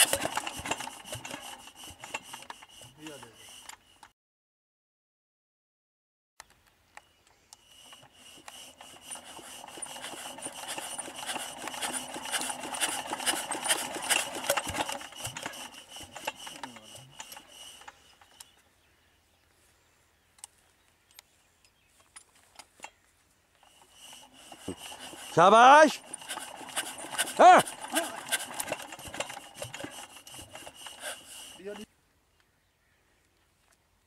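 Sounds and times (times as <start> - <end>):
diesel engine turned over by hand: 0.0 - 4.0, 7.6 - 18.6, 23.6 - 31.9
scattered mechanical clicks: 0.0 - 4.1, 7.5 - 18.5, 23.6 - 31.9.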